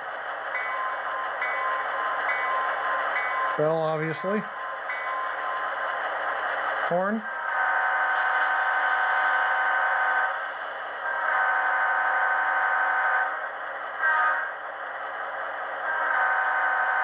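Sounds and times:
model train horn blasts: 7.5s - 10.3s, 11.1s - 13.4s, 14.0s - 14.5s, 15.9s - 17.0s.

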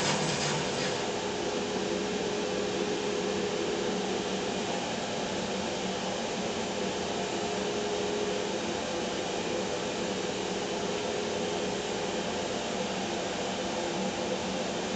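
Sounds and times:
bandsaw running: 0.0s - 1.1s
dust collector fan noise: 0.0s - 14.9s.

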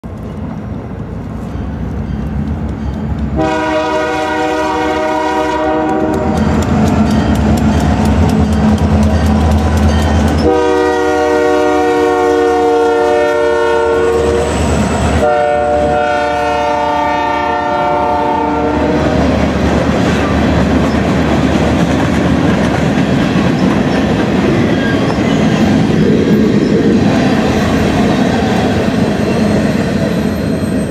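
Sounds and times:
train wheels rumbling and clacking: 0.0s - 30.9s
train horn blasts: 3.4s - 6.7s, 10.4s - 19.2s.

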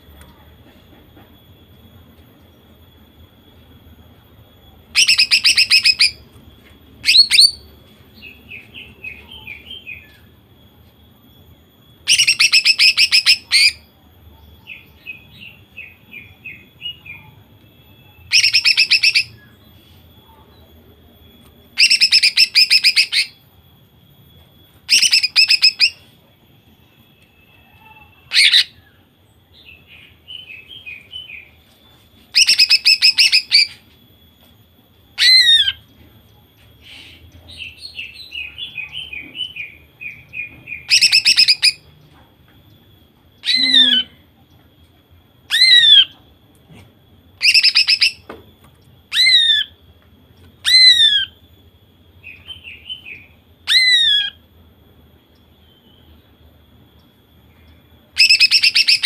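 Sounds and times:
bird singing rapid bursts: 5.0s - 6.2s, 18.1s - 19.4s, 21.8s - 23.4s, 24.9s - 26.0s, 36.8s - 41.8s, 47.4s - 48.2s, 58.1s - 59.0s.

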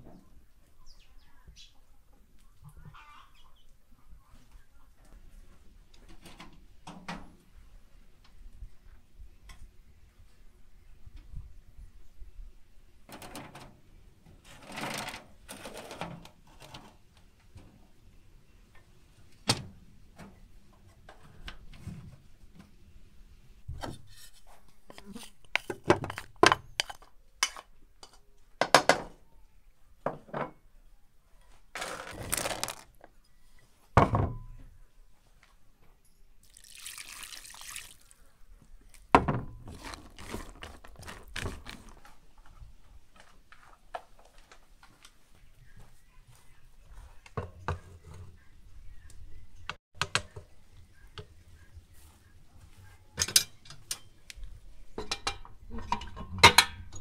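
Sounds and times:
spoon stirring in metal bowl: 24.1s - 28.2s
raisins poured into metal bowl: 31.8s - 32.8s
dishes and utensils clinking: 53.2s - 54.2s, 55.0s - 57.0s.

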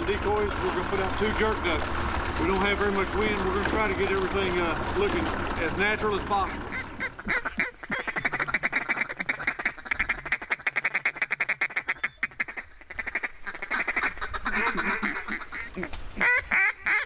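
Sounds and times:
drawn-out duck quacks: 6.3s - 17.0s
duck clucking quacks: 6.4s - 17.0s.

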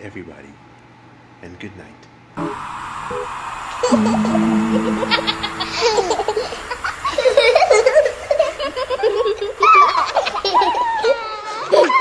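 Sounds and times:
young child laughing: 5.2s - 12.0s
child squealing: 9.6s - 12.0s.

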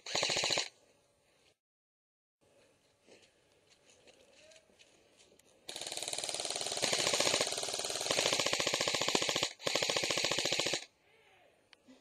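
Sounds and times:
airsoft rifle firing full-auto: 0.0s - 0.7s, 5.7s - 10.9s.

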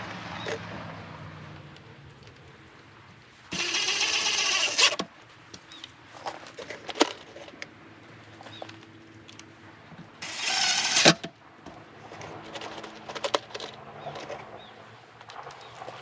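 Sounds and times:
screws clicking and rattling: 3.5s - 5.0s
cordless driver driving screw: 3.5s - 5.1s, 10.2s - 11.3s.

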